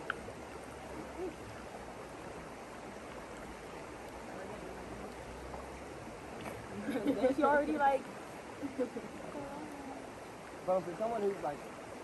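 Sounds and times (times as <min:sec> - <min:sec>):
flowing water rushing: 0:00.0 - 0:12.0
faint voice: 0:01.1 - 0:01.4.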